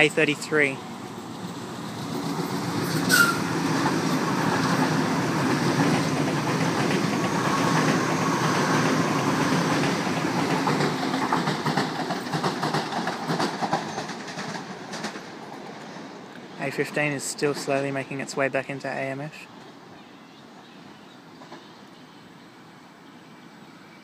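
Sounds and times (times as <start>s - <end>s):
electric train passing: 0.0s - 24.0s.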